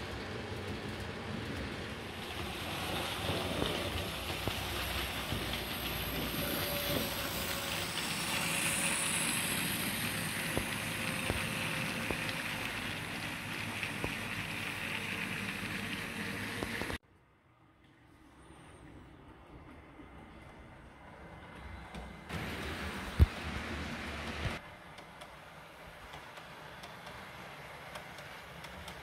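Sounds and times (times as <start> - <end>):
model train wheels rolling on rail: 0.0 - 17.0, 19.4 - 29.0.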